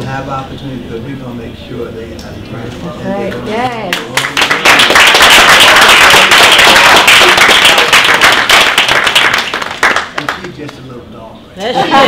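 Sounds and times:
people applauding: 3.9 - 10.8.

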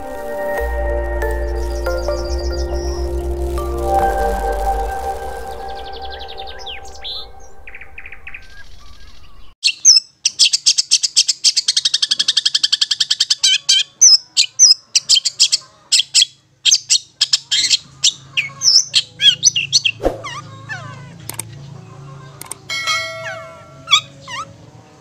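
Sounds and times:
bird whistled notes: 5.3 - 10.0.

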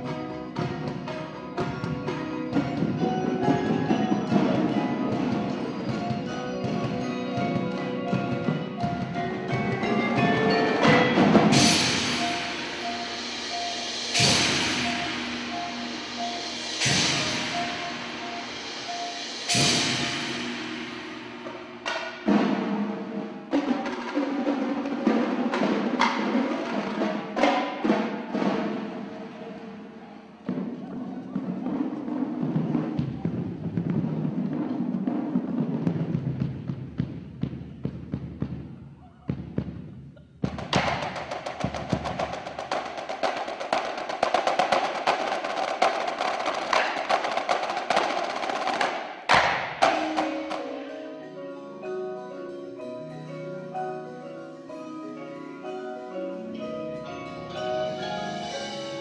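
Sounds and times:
marching drums hitting: 0.5 - 29.3, 30.4 - 50.9
mallet keyboards ringing: 1.0 - 20.3, 49.5 - 59.0.

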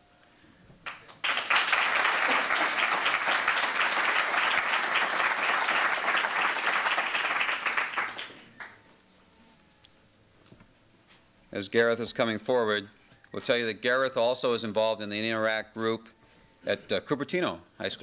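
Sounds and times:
audience applauding: 0.8 - 8.8.

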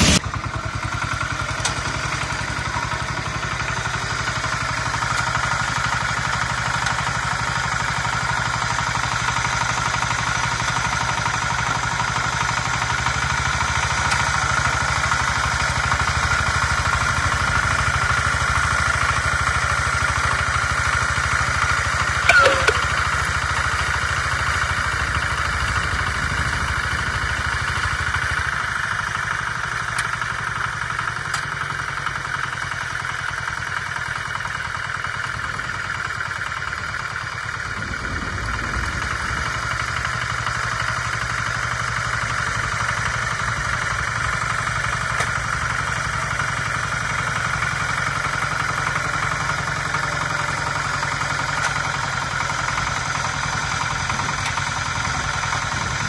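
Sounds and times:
rotary tiller churning wet soil: 0.0 - 21.6, 40.2 - 56.0
diesel engine running under load: 0.0 - 56.0.

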